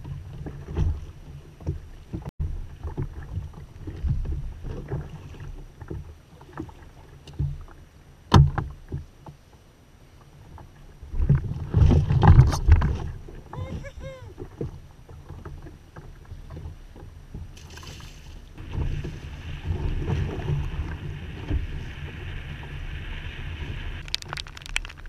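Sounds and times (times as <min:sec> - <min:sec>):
knocks and thumps on kayak hull: 0:08.3 - 0:09.1, 0:11.1 - 0:13.8.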